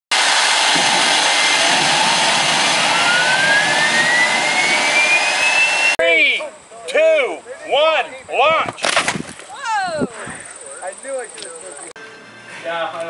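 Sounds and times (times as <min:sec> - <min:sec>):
jet engine rushing: 0:00.1 - 0:06.0
turbine whine rising in pitch: 0:00.1 - 0:06.0.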